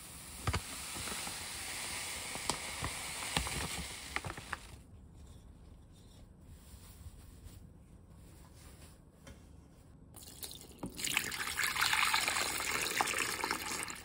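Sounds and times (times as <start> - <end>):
cloth being handled: 4.5 - 10.1.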